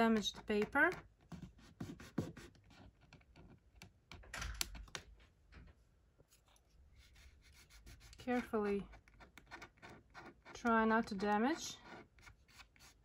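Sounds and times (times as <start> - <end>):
fingertips rubbing paper: 7.0 - 13.0.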